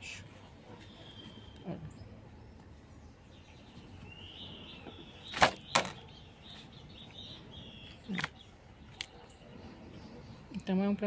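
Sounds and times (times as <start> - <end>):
faint high chirping: 0.0 - 10.6.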